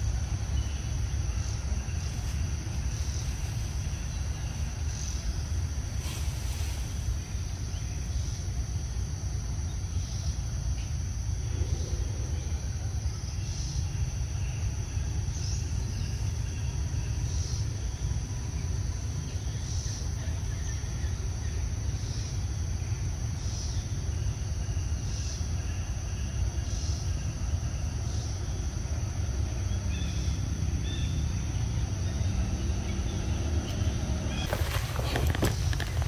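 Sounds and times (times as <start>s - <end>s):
insects droning: 0.0s - 36.0s
low rumble: 11.4s - 13.4s.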